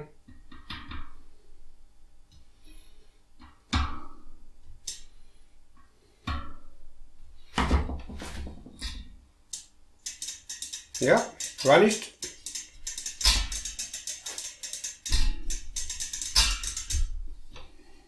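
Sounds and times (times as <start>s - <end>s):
metallic knocks on bicycle wheel: 10.0s - 17.2s
ringing rim and spokes: 10.0s - 17.2s.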